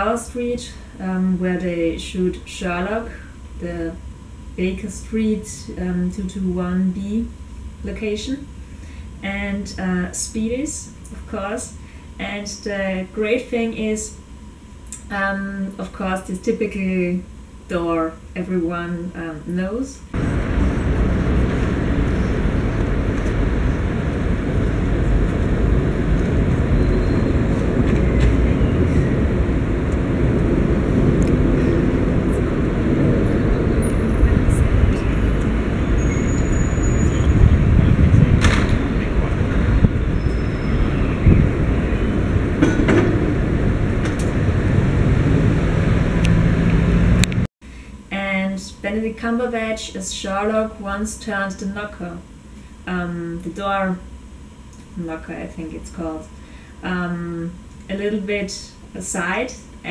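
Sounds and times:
low rumble of traffic: 0:00.0 - 0:47.5
engine hum: 0:20.1 - 0:47.5.

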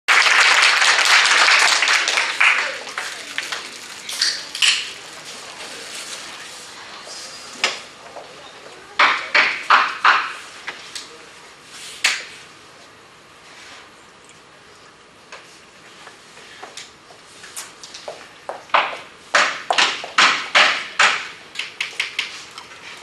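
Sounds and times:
audience applause: 0:00.1 - 0:04.1
sharp knocks: 0:09.0 - 0:10.4, 0:18.7 - 0:21.4.

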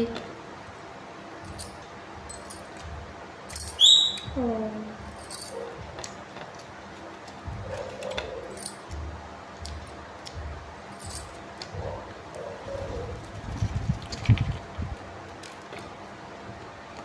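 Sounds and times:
glass bangles jingling: 0:01.4 - 0:04.3, 0:05.0 - 0:05.7, 0:07.8 - 0:09.0, 0:10.9 - 0:11.6
parakeet squawk: 0:03.8 - 0:04.3.

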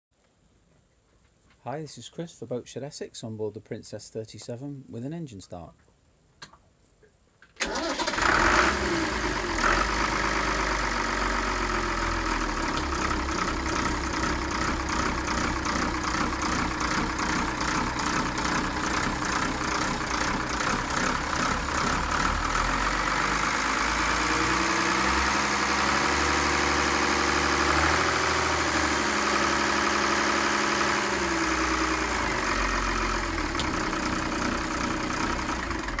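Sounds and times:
diesel engine starting and idling: 0:07.6 - 0:36.0.

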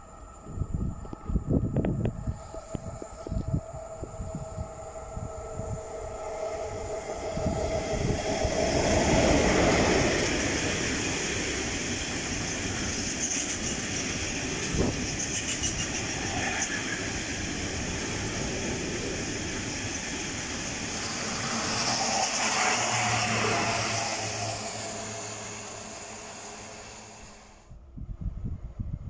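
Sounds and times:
freight train rumbling past: 0:00.0 - 0:28.4
wheel squeal: 0:12.1 - 0:17.9.

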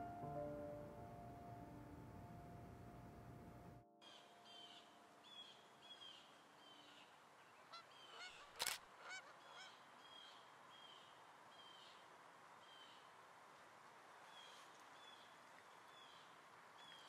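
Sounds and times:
faint birdsong chirping: 0:04.0 - 0:13.1
camera shutter click: 0:08.6 - 0:08.8.

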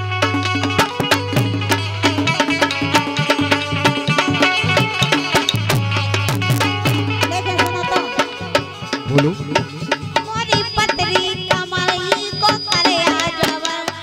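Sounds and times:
barrel drum beaten fast: 0:00.0 - 0:14.0
harmonium tones: 0:00.0 - 0:14.0
woman singing: 0:07.1 - 0:08.8, 0:10.2 - 0:14.0.

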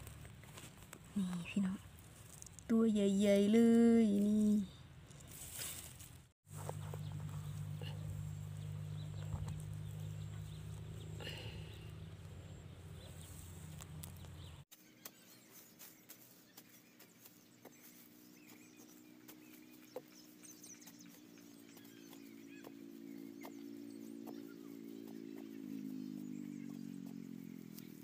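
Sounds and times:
hand scraping rumble: 0:05.0 - 0:14.6.

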